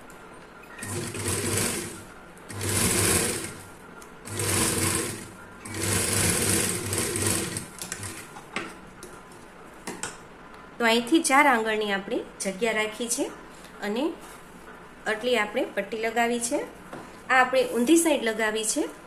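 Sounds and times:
sewing machine stitching: 0.7 - 8.3.

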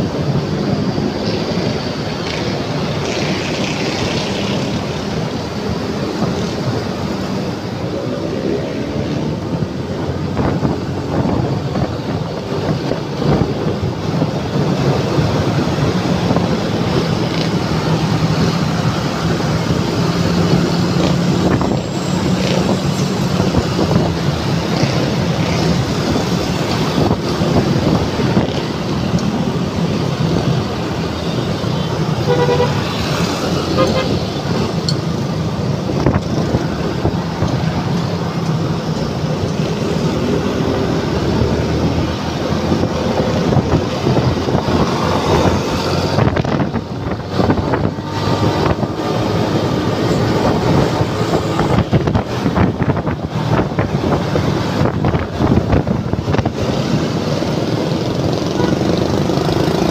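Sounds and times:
surrounding motorcycles and cars: 0.0 - 59.9
wind and road noise: 0.0 - 59.9
vehicle horn beeps: 32.2 - 32.9, 33.7 - 34.2.

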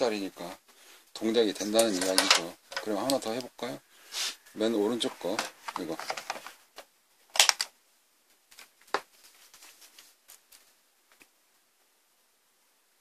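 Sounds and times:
light ticks and rustles: 8.2 - 11.9.

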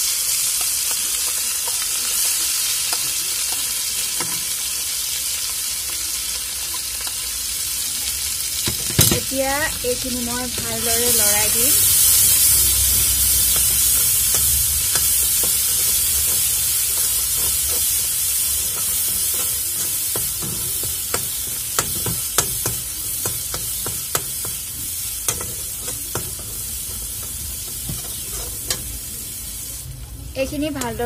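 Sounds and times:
paste sizzling in hot oil: 0.0 - 31.0
spatula scraping and tapping pan: 13.0 - 29.0.

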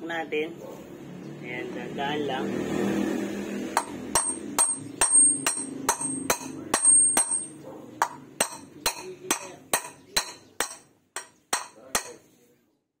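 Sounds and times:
hammer striking metal: 3.7 - 12.2.

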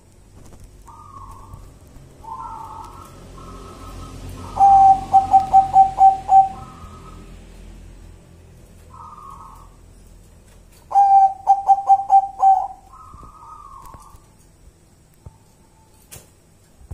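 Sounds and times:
dove cooing: 0.8 - 7.3, 8.9 - 9.8, 10.8 - 14.4.

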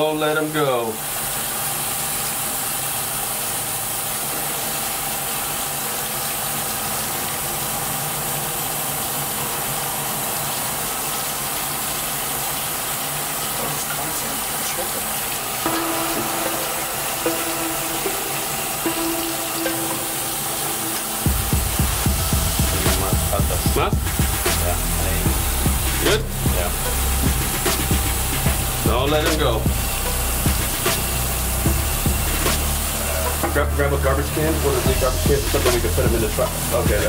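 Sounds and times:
water running from faucet: 0.0 - 37.0
short pitched tones: 15.5 - 33.5.

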